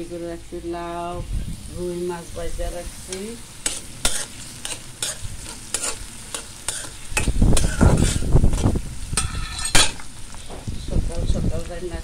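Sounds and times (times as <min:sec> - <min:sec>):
prawns sizzling in hot oil: 0:00.0 - 0:12.0
metal spatula scraping and stirring: 0:03.1 - 0:10.0.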